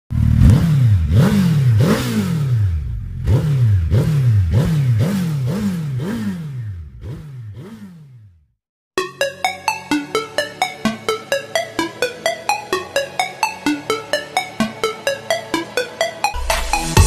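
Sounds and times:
motorcycle engine revving: 0:00.1 - 0:08.6.

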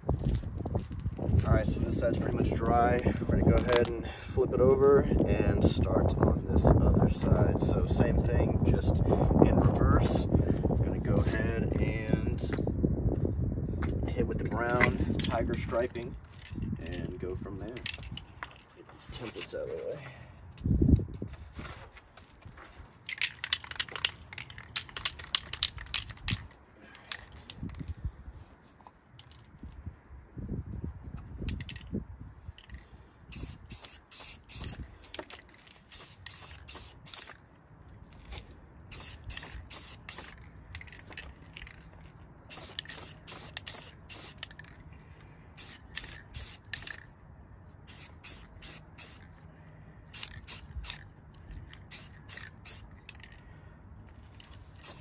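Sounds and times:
spray-paint can hissing: 0:33.3 - 0:34.8, 0:35.8 - 0:37.4, 0:38.9 - 0:40.4, 0:42.5 - 0:44.7, 0:45.6 - 0:47.0, 0:47.8 - 0:49.3, 0:50.1 - 0:51.0, 0:51.9 - 0:53.3, 0:54.8 - 0:55.0.

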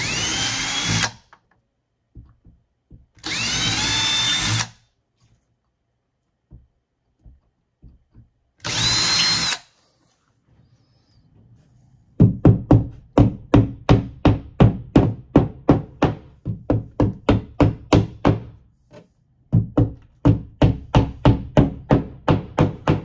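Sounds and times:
hammer tapping anchors into drywall: 0:02.1 - 0:04.6, 0:06.4 - 0:09.4, 0:12.2 - 0:23.0.

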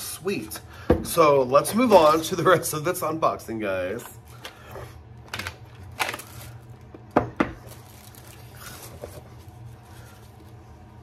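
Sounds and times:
packaging rustling: 0:04.2 - 0:11.0.

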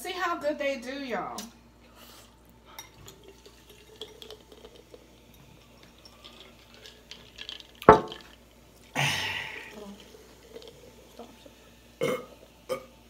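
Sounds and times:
soda pouring and fizzing: 0:02.9 - 0:13.0.

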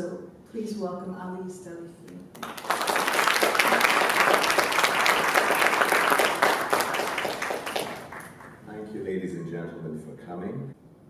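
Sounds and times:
audience applauding: 0:02.3 - 0:08.6.

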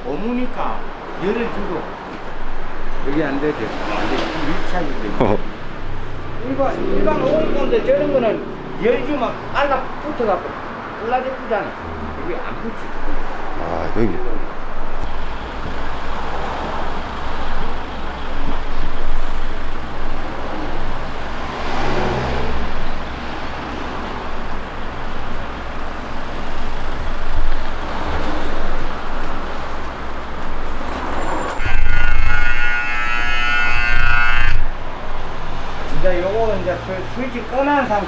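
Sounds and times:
street traffic noise: 0:00.0 - 0:38.0
long harsh buzzer beep: 0:31.6 - 0:34.7.

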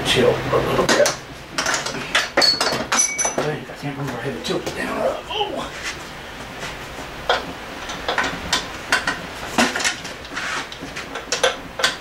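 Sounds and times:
metal tools clinking and knocking: 0:01.6 - 0:03.5.

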